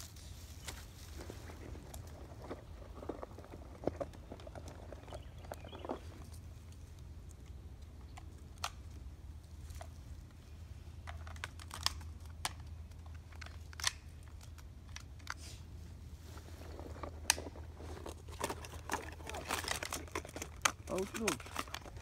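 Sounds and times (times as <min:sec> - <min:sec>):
light clicks of gear: 0:00.6 - 0:15.7.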